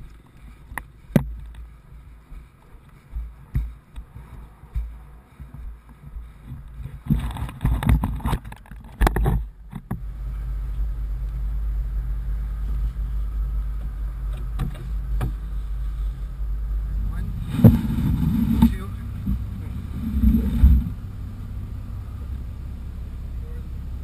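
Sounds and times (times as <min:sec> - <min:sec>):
rustling and knocks: 0:00.0 - 0:10.1, 0:17.4 - 0:21.0
wind buffeting camera: 0:00.0 - 0:10.1, 0:16.9 - 0:21.3
engine idling: 0:09.4 - 0:24.0.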